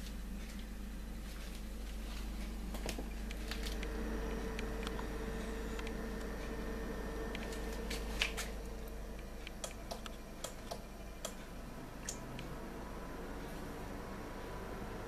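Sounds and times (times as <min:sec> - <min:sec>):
low electrical hum: 0:00.0 - 0:15.0
light clicks and ticks: 0:05.7 - 0:06.3, 0:09.2 - 0:12.6.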